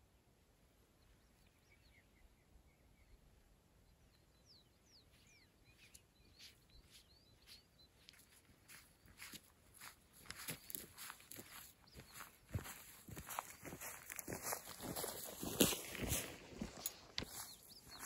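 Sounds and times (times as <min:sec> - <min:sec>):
footsteps on dry grass: 0:05.1 - 0:18.0.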